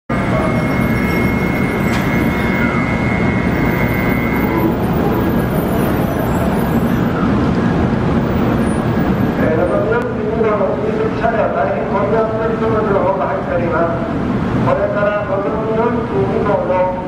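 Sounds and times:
thin high tone: 0:00.1 - 0:07.3
train moving slowly past: 0:00.1 - 0:17.0
train rumble: 0:00.1 - 0:17.0.

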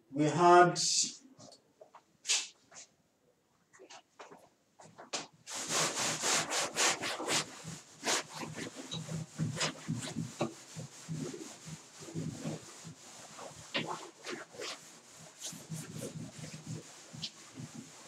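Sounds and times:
duster rubbing chalkboard: 0:05.5 - 0:18.0.

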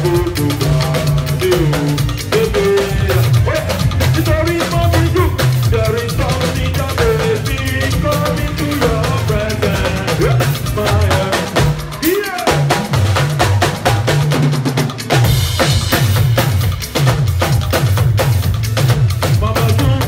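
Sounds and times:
man singing: 0:00.0 - 0:12.8, 0:19.2 - 0:20.0
bass line: 0:00.0 - 0:20.0
drum kit beat: 0:00.0 - 0:20.0.

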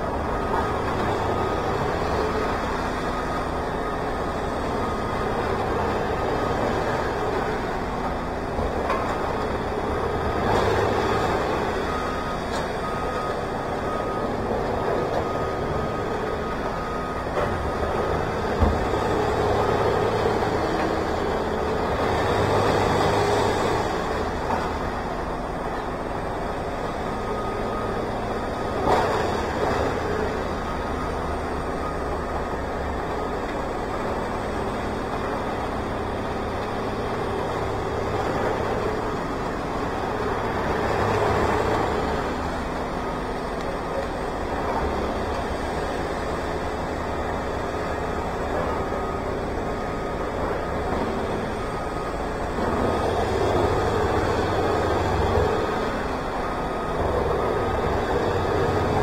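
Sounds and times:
heavy equipment engine running: 0:00.0 - 0:59.0
reversing alarm beeping: 0:00.0 - 0:59.0.

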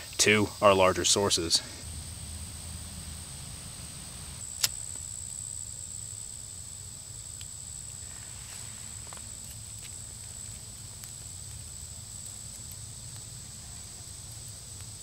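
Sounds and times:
high-pitched insect drone: 0:00.0 - 0:10.2
sharp click: 0:04.6 - 0:05.0.

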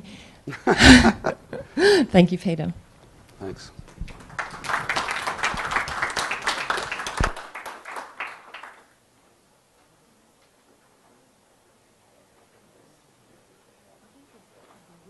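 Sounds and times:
audience applauding: 0:04.1 - 0:08.9.

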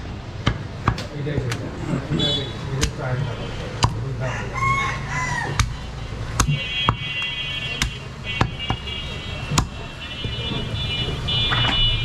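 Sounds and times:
cleaver chopping meat and bone: 0:00.4 - 0:01.6, 0:02.7 - 0:04.1, 0:05.3 - 0:08.8, 0:09.5 - 0:10.5.

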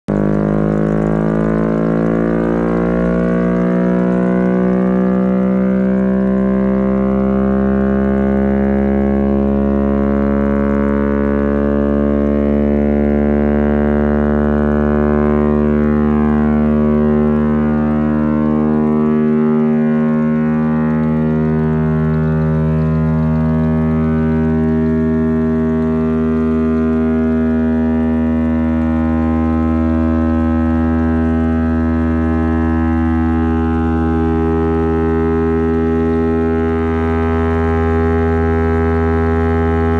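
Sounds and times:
low motor drone: 0:00.0 - 0:39.9
air raid siren wailing: 0:00.1 - 0:39.9.

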